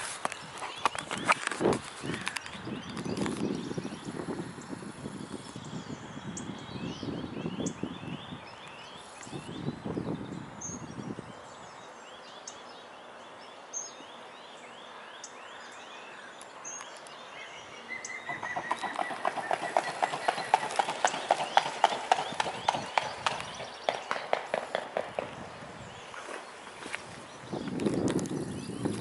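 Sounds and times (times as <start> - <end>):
songbirds singing: 0.0 - 29.0
wings beating: 18.3 - 25.4
swan feet slapping water: 26.1 - 29.0.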